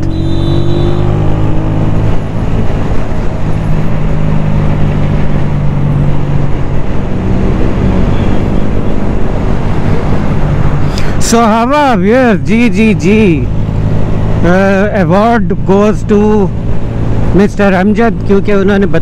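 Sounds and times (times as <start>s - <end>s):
motorcycle engine running: 0.0s - 10.8s
road and air noise hiss: 8.6s - 15.7s.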